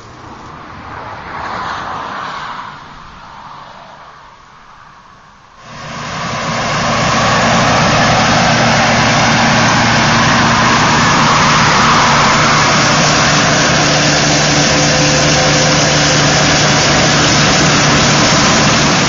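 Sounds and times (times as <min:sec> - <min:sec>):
combine harvester engine drone: 0:05.6 - 0:19.0
rushing hiss: 0:05.6 - 0:19.0.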